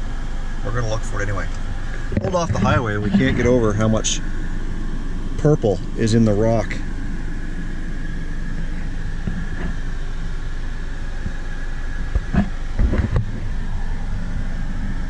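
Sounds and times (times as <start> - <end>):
road and engine noise in car: 0.0 - 15.0.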